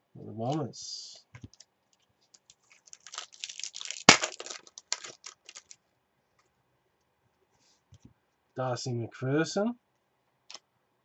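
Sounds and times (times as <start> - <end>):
cards rustling and clicking: 2.2 - 5.8.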